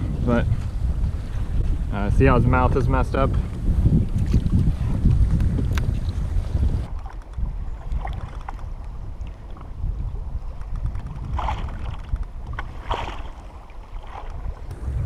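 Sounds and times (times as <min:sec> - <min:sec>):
wind rumbling on microphone: 0:00.0 - 0:15.0
water lapping against hull: 0:03.1 - 0:15.0
short water splashes: 0:04.0 - 0:06.2, 0:06.8 - 0:09.8, 0:10.6 - 0:14.7.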